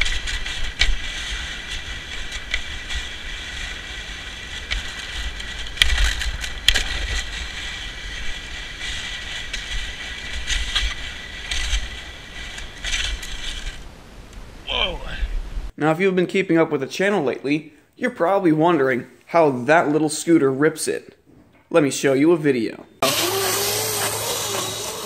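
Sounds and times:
sharp knocks and rattles: 0:00.0 - 0:13.8
wind rumbling on microphone: 0:00.0 - 0:15.7
sled scraping over ice: 0:23.0 - 0:25.0.

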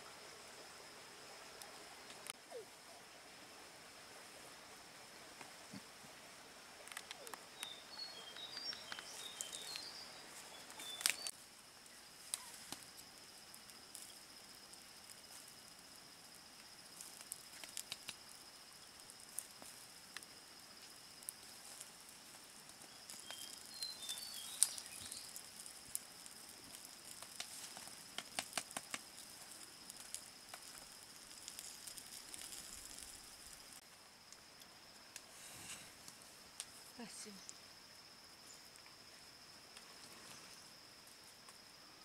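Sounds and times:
high insect drone: 0:00.0 - 0:42.0
embers crackling: 0:01.5 - 0:02.6, 0:05.2 - 0:41.7
bird chirps: 0:07.2 - 0:11.3, 0:23.2 - 0:25.3.

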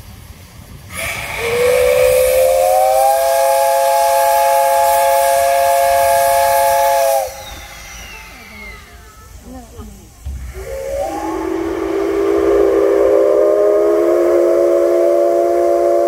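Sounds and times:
steam hissing: 0:00.0 - 0:16.0
steam locomotive whistle: 0:00.9 - 0:09.4, 0:10.4 - 0:16.0.

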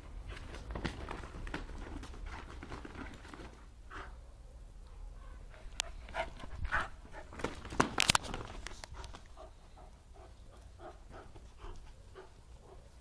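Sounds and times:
dog panting: 0:05.6 - 0:07.4, 0:08.9 - 0:13.0.

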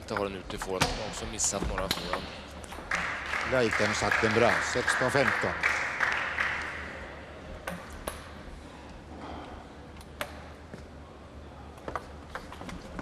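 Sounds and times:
table tennis ball bouncing: 0:00.0 - 0:04.5, 0:07.6 - 0:08.4
low hall hum: 0:00.0 - 0:13.0.

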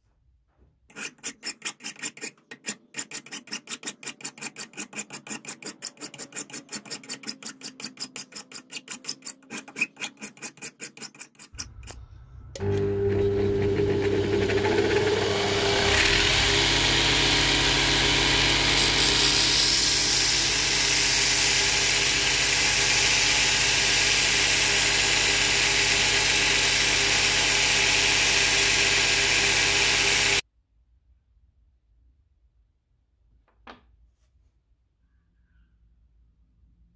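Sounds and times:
metal grinding on sanding belt: 0:00.9 - 0:12.0, 0:15.7 - 0:30.4
belt sander motor humming: 0:12.6 - 0:30.4.

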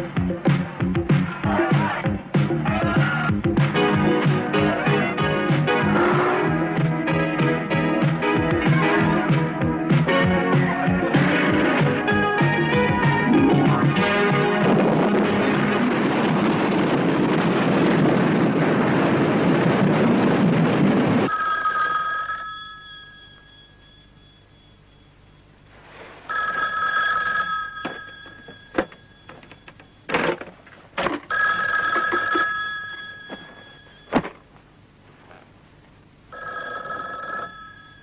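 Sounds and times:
loud dense noise: 0:13.2 - 0:21.3
telephone bell ringing: 0:21.3 - 0:25.1, 0:26.3 - 0:30.0, 0:31.3 - 0:34.1, 0:36.3 - 0:38.0.

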